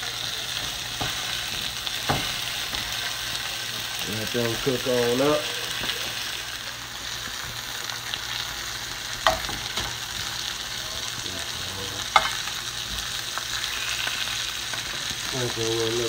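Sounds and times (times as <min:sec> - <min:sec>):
sausages sizzling in a pan: 0:00.0 - 0:16.0
spatula knocking against pan: 0:00.6 - 0:03.0.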